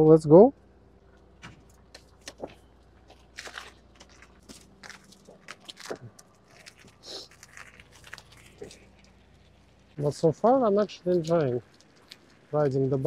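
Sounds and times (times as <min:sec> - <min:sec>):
faint steady hum: 0:00.0 - 0:13.0
bicycle clicks and scuffs: 0:01.4 - 0:10.1.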